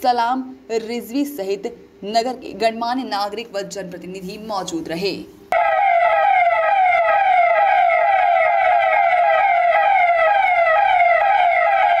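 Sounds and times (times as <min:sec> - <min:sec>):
electronic siren sweeping: 0:05.6 - 0:12.0.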